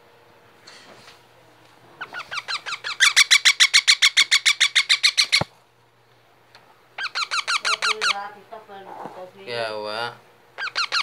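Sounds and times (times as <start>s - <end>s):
parakeet squawking rapidly: 2.0s - 5.5s, 7.0s - 8.4s, 10.6s - 11.0s.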